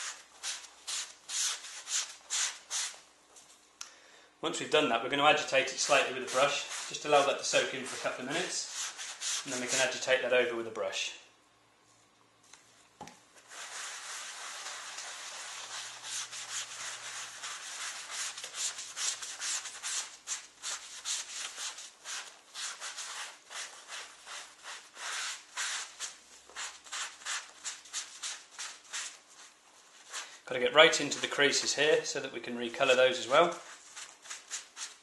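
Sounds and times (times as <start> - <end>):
scrubbing leather: 13.5 - 29.6.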